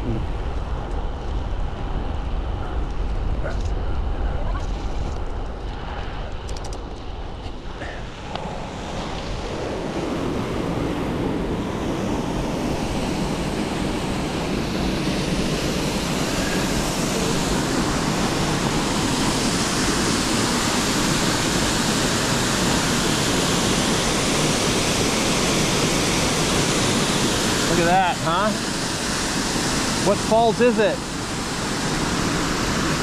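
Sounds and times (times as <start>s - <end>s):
waterfall rushing: 13.0s - 33.0s.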